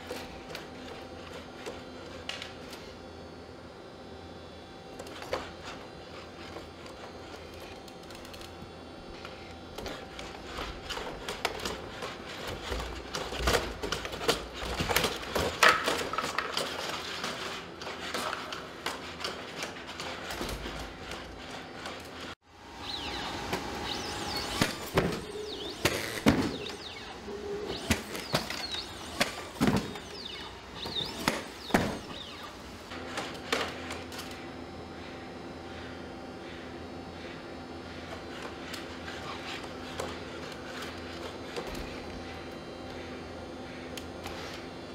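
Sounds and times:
robot motor hum: 4.9s - 34.6s.

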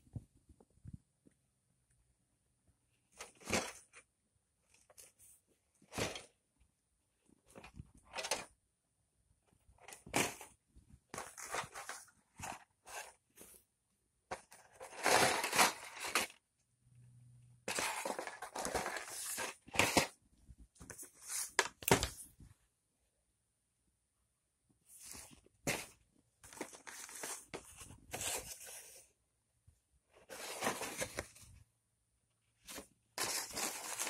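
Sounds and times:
cardboard boxes rustling: 11.2s - 13.6s, 14.3s - 16.3s, 17.7s - 20.1s, 25.0s - 29.0s, 30.3s - 31.4s, 32.7s - 34.0s.

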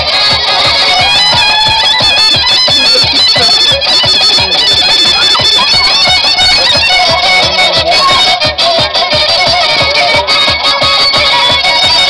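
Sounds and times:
high wavering melody: 0.0s - 12.0s
steady drum beat: 0.0s - 12.0s.

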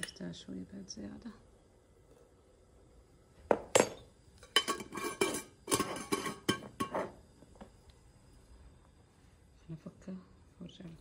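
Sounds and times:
metal spoon clinking on kettle: 3.7s - 7.1s.

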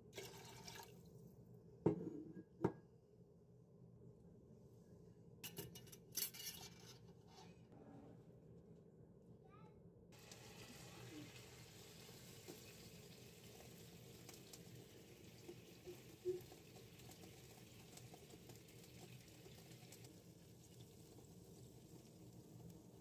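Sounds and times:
faint steady hiss: 10.2s - 23.0s.

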